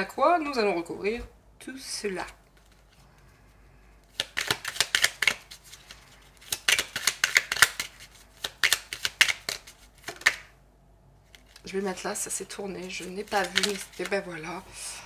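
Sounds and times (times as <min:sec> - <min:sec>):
cards being shuffled: 0:02.2 - 0:03.3, 0:04.0 - 0:10.5, 0:11.2 - 0:14.5.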